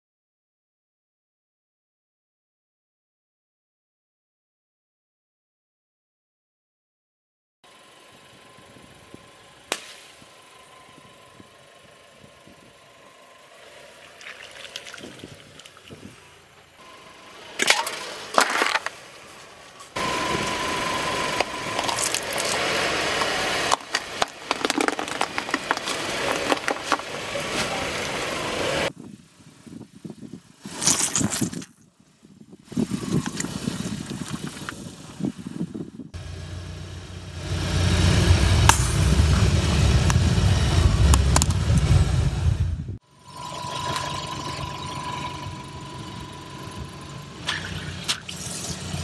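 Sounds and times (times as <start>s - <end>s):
car engine rumbling low: 7.7s - 30.5s, 32.8s - 49.0s
tyre crushing objects: 21.7s - 27.7s.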